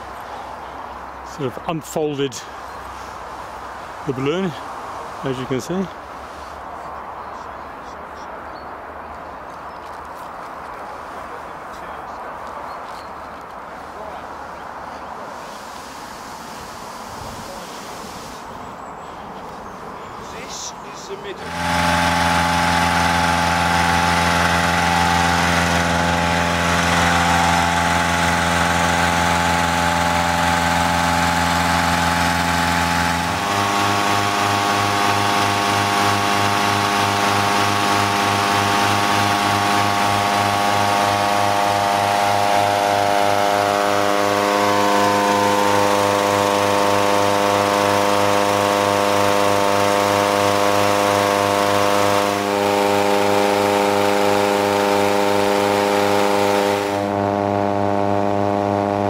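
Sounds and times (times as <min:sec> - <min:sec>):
petrol engine fan running: 0:00.0 - 0:06.4, 0:20.4 - 0:59.0.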